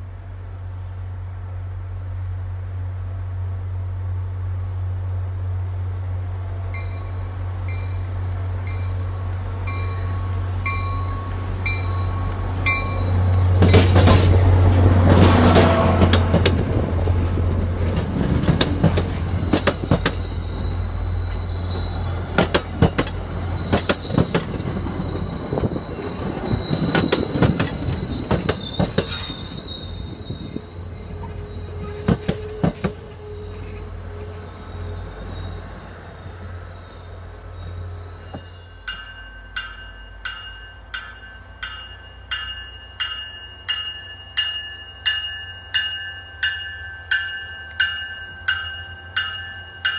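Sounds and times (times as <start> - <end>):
train wheels clacking over rail joints: 11.3 - 20.4, 21.8 - 29.4
wheel flanges squealing: 17.8 - 39.3
bell ringing steadily: 38.6 - 49.9.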